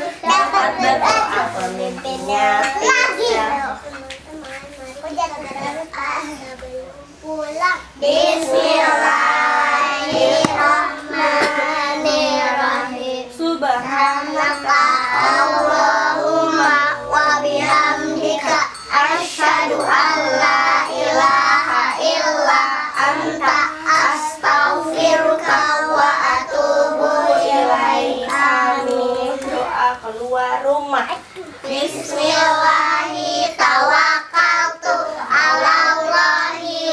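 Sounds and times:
children singing together: 0:00.0 - 0:04.1, 0:04.7 - 0:30.1, 0:31.4 - 0:36.9.

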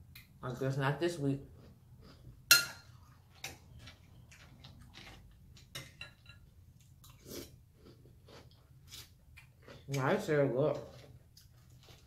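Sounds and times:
chewing cereal: 0:02.9 - 0:05.7, 0:06.8 - 0:12.0.

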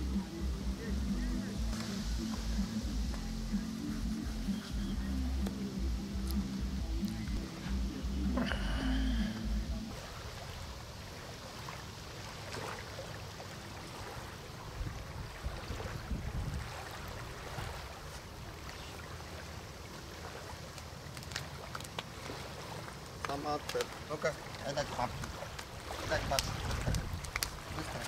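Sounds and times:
river water lapping: 0:00.0 - 0:28.0
wind noise on microphone: 0:14.6 - 0:18.6, 0:25.0 - 0:28.0.

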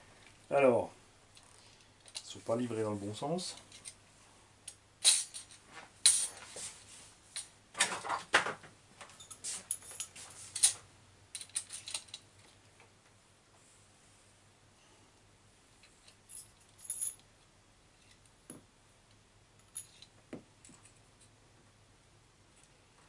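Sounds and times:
small metal parts clicking: 0:09.2 - 0:12.5, 0:19.6 - 0:21.3.

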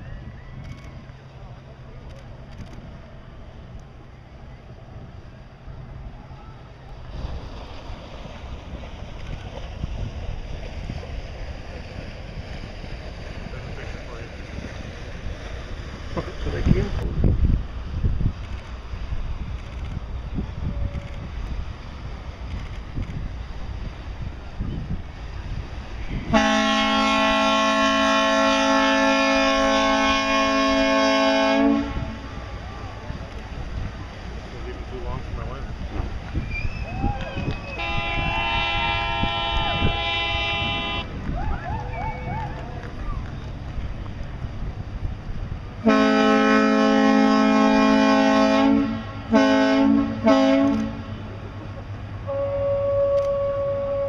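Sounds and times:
long chord horn blast: 0:26.3 - 0:32.3, 0:37.8 - 0:41.1, 0:45.8 - 0:51.1, 0:52.3 - 0:54.0.

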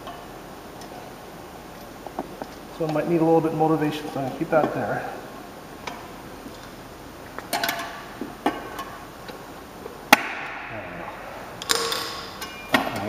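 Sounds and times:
metal tire levers clinking: 0:05.8 - 0:09.4, 0:11.6 - 0:13.0.

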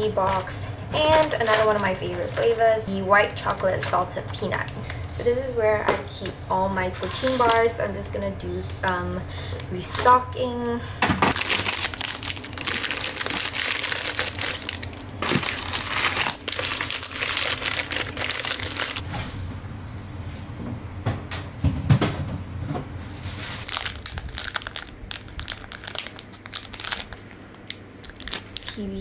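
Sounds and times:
plastic wrappers crinkling: 0:00.0 - 0:04.6, 0:11.3 - 0:19.0, 0:23.6 - 0:29.0
wrapper tearing open: 0:11.4 - 0:19.0, 0:23.6 - 0:29.0.

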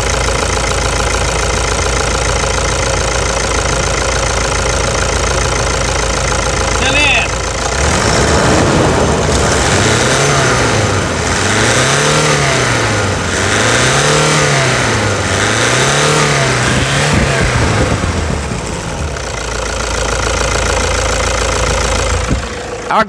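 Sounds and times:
diesel engine idling: 0:00.0 - 0:23.0
diesel engine revving: 0:00.0 - 0:23.0.

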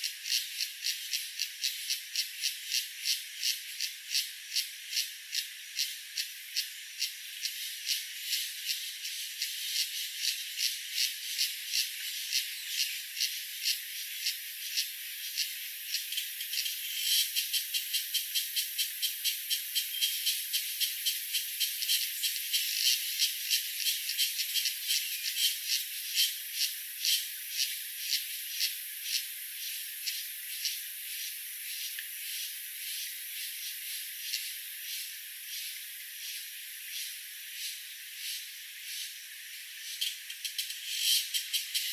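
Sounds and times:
rattling insect call: 0:00.0 - 0:41.9
faint steady hiss: 0:20.6 - 0:41.9.

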